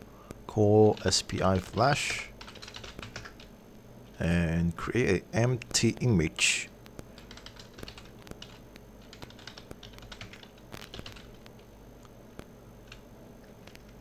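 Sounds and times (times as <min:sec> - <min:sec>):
computer keyboard key clicks: 0:07.2 - 0:11.5.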